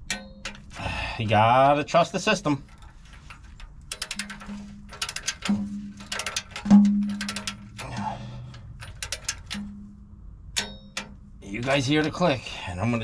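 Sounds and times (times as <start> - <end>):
torque wrench ratchet clicking: 2.6 - 9.7
low hum: 2.6 - 13.0.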